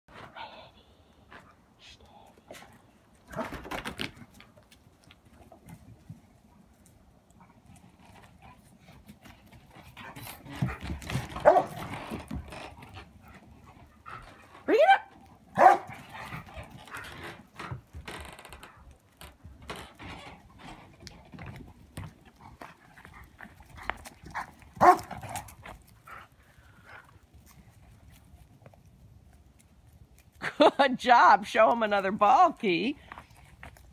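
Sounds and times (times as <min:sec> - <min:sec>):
dogs scuffling: 0:03.2 - 0:29.6
dogs barking: 0:11.4 - 0:11.8, 0:14.9 - 0:16.0, 0:24.8 - 0:25.2.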